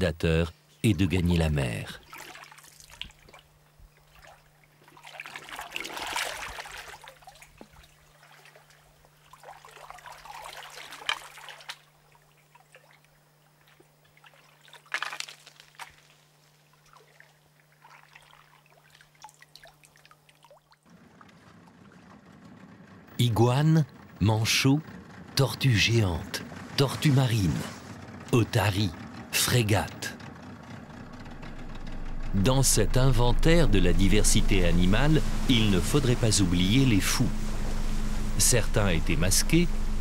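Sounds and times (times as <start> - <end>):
water splashing and trickling: 1.9 - 22.4, 31.1 - 40.0
faint low hum: 30.9 - 40.0.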